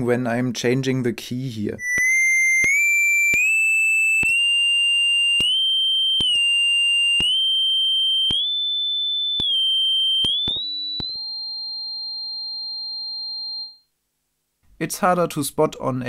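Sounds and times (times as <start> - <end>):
distorted sine tone: 1.8 - 11.4.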